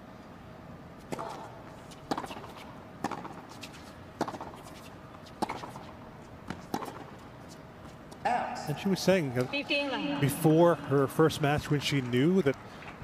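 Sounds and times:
tennis ball hit by rackets: 1.1s - 7.2s.

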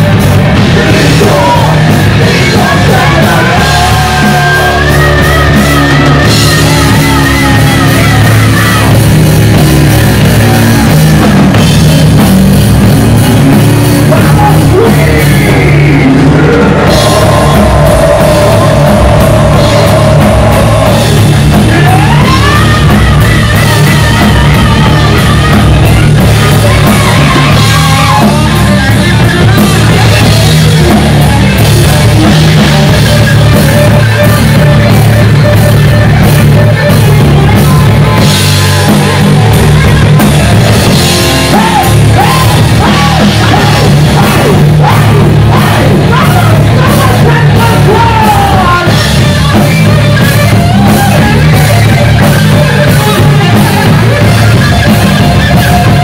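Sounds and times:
bass guitar: 0.0s - 56.0s
drum kit: 0.0s - 56.0s
heavy metal band playing: 0.0s - 56.0s
person singing and shouting: 0.0s - 56.0s.

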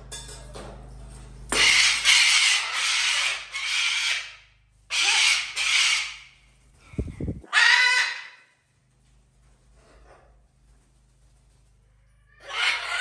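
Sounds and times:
parrot screeching: 1.5s - 6.4s, 7.5s - 8.5s, 12.2s - 13.0s.

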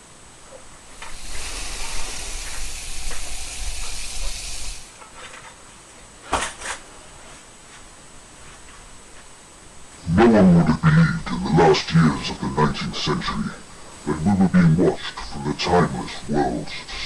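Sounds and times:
gas hissing from spray canister: 1.0s - 5.0s.

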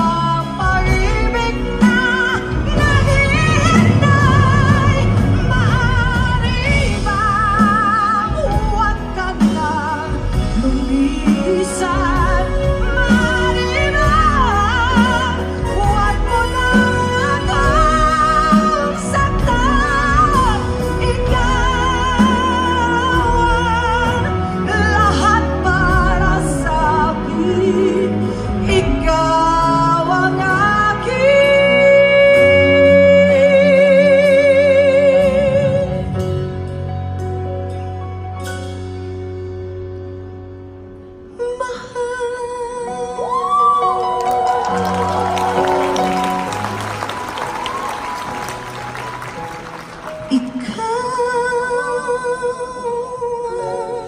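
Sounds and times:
woman singing a pop ballad: 0.0s - 36.7s, 41.3s - 46.0s, 50.2s - 54.0s
band accompaniment: 0.0s - 42.0s, 42.7s - 54.0s.

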